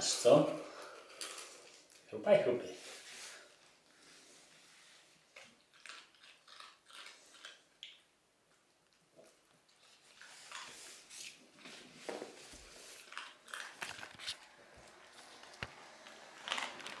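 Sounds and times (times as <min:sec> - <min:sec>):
dog crunching dry kibble: 0:05.3 - 0:17.0.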